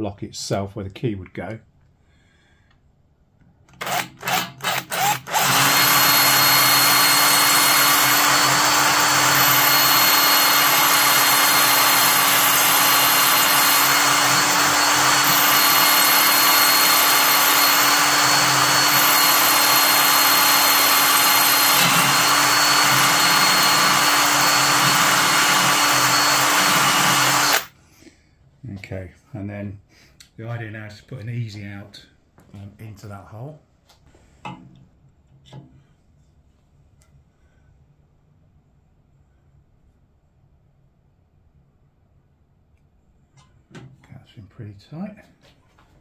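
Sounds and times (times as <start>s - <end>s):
power drill boring into metal: 3.8s - 27.7s.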